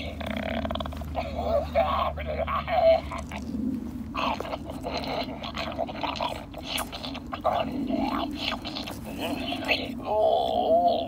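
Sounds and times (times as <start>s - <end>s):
electronic chewing sounds: 0.0s - 11.0s.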